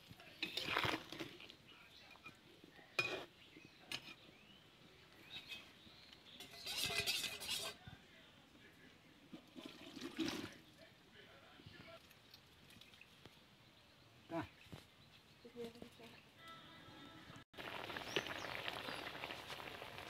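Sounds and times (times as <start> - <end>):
metal spatula scraping steel pot: 0.4 - 1.3, 3.0 - 3.3, 3.9 - 4.3, 5.2 - 7.8.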